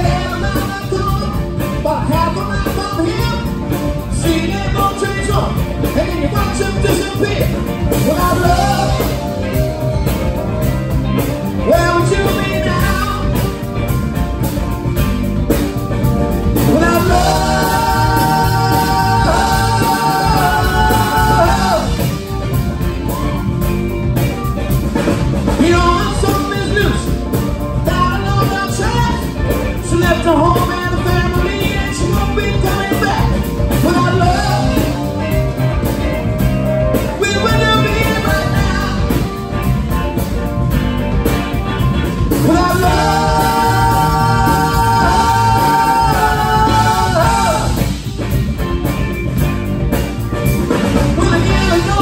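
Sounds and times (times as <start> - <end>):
live rock band playing: 0.0 - 52.0.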